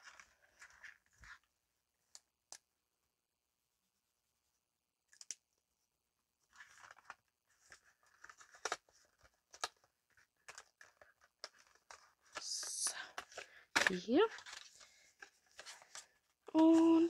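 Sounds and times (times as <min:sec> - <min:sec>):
plastic packaging crinkling: 0:06.5 - 0:17.0.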